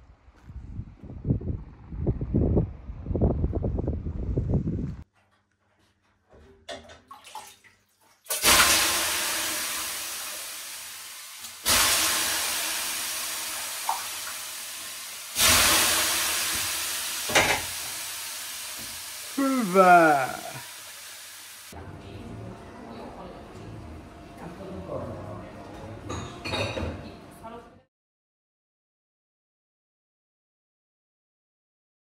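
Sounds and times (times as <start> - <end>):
water thrown onto hot stones: 6.8 - 20.5
loud hiss of steam: 8.4 - 21.8.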